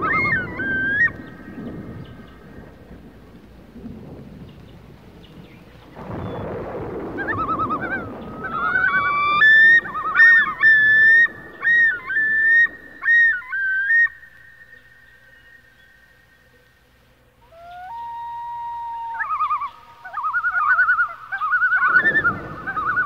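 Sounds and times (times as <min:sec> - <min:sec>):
bird-like whistled notes: 0:00.0 - 0:02.4, 0:05.9 - 0:16.4, 0:17.4 - 0:23.0
low rumbling noise: 0:00.0 - 0:23.0.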